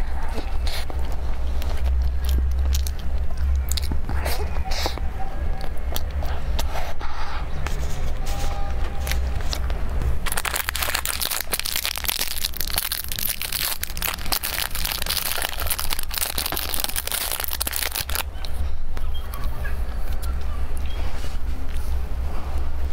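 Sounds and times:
steady low hum: 0:00.0 - 0:22.9
plastic wrapper crinkling: 0:10.2 - 0:18.3.

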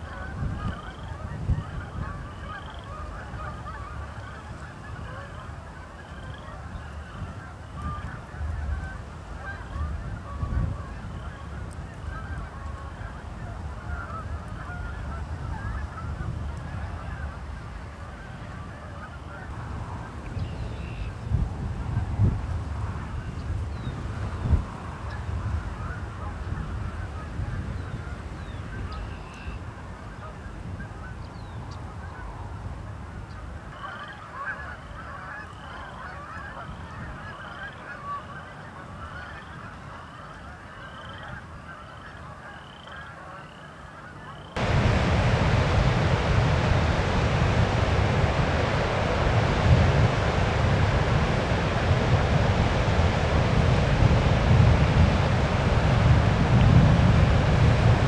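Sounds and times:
geese calling: 0:00.0 - 0:17.4, 0:33.7 - 0:44.7
low wind rumble: 0:00.0 - 0:42.5, 0:44.5 - 0:58.0
loud rushing noise: 0:44.6 - 0:58.0.

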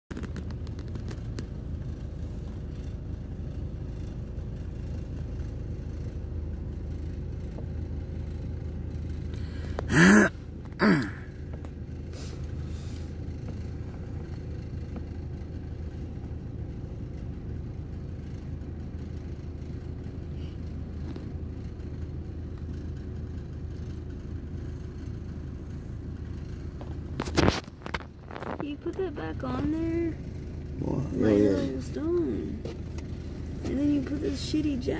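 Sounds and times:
car engine rumble from inside: 0:00.1 - 0:34.9
loud vocal bursts: 0:09.9 - 0:11.3.

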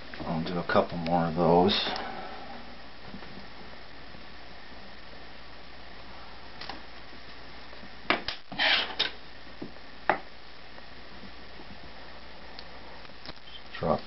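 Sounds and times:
short scrape: 0:08.5 - 0:09.0.

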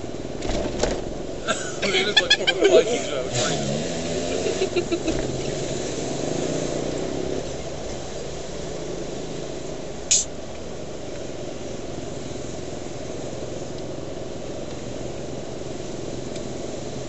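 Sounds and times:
car engine and road rumble: 0:00.0 - 0:17.0
brief sharp hiss: 0:10.1 - 0:10.3.

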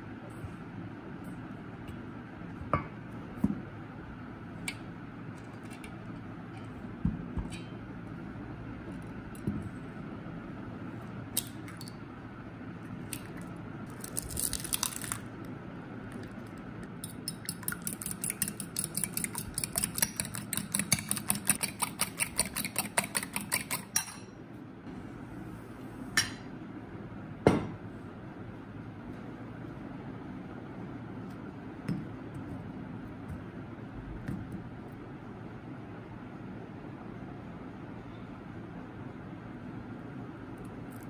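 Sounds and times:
fork clinking against glass bowl: 0:17.0 - 0:24.4.

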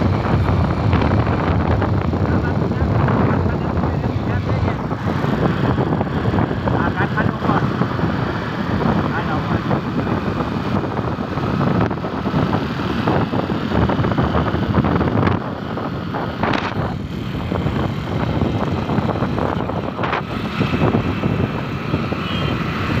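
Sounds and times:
vehicle road noise: 0:00.0 - 0:23.0
wind rushing over microphone: 0:00.0 - 0:23.0.

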